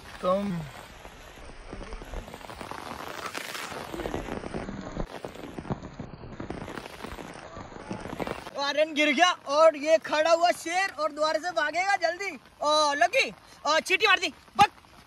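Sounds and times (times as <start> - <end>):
rain drops falling: 0.0 - 15.0.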